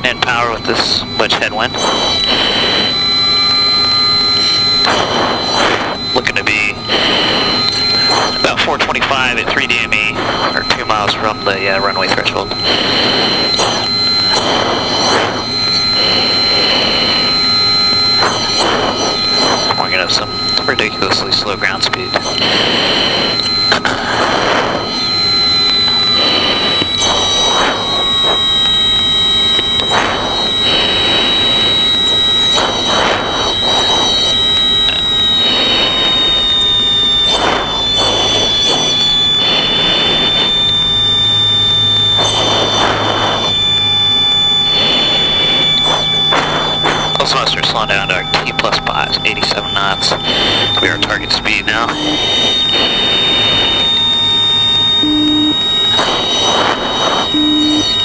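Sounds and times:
cockpit noise: 0.0 - 58.0
intercom noise: 0.0 - 58.0
short low beeps: 0.0 - 58.0
steady high tone: 0.0 - 58.0
breathing in oxygen mask: 1.8 - 3.0, 6.8 - 8.4, 12.5 - 17.4, 18.0 - 19.8, 22.3 - 25.1, 26.0 - 28.8, 29.4 - 36.6, 37.3 - 40.5, 42.2 - 43.7, 44.7 - 47.2, 50.1 - 51.1.

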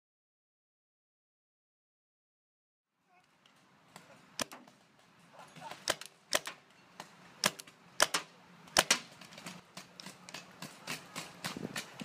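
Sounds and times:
paintball markers firing pops: 4.4 - 4.7, 5.8 - 12.0.

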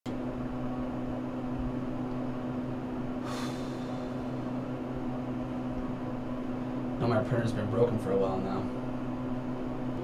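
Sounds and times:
elevator hum: 0.1 - 10.0
short breathy hiss: 3.2 - 4.2.

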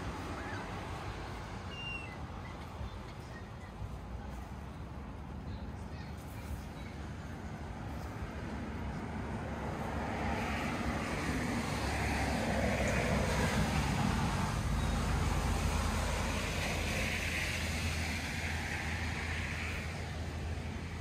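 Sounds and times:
distant vehicle passing: 7.6 - 21.0.

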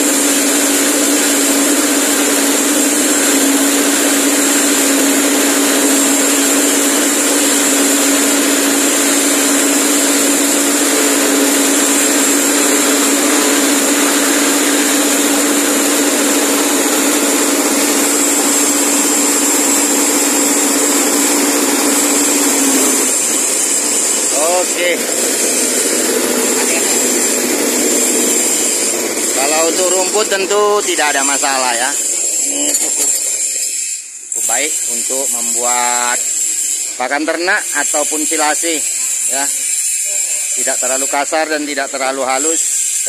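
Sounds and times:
petrol engine grass chopper: 0.0 - 33.3.

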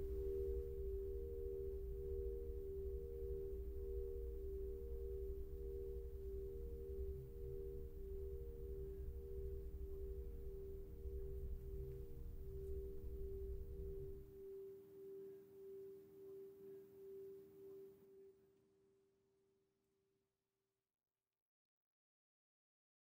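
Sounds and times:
steady pure tones: 0.0 - 18.3.

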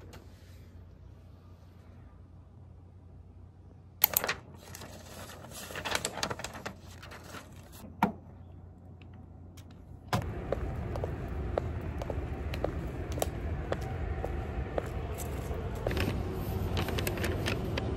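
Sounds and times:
paper rustling: 4.1 - 7.8
steady background noise: 7.8 - 17.9.

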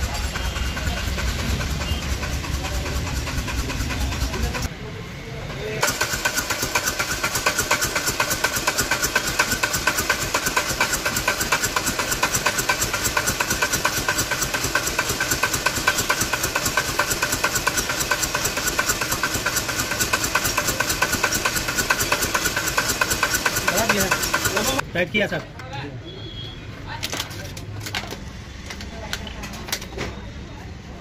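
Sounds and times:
diesel engine idling: 0.0 - 5.0, 5.8 - 24.9
hiss: 5.8 - 24.8.

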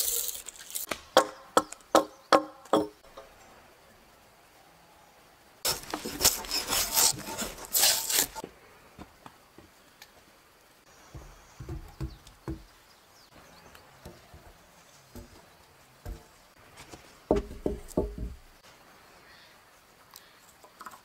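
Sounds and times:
leaves and twigs crunching underfoot: 0.0 - 1.8, 5.6 - 8.4
log knocking on stone wall: 11.1 - 12.7, 14.0 - 16.4, 17.3 - 18.5.

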